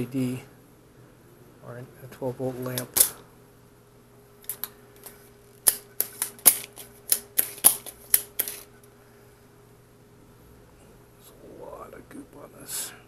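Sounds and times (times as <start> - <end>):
faint steady hum: 0.0 - 13.0
hard tools clicking and tapping: 4.4 - 8.7.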